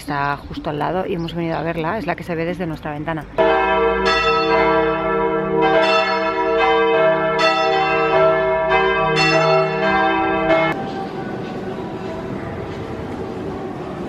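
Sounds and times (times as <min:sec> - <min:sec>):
church bells ringing a peal: 0:03.4 - 0:12.6.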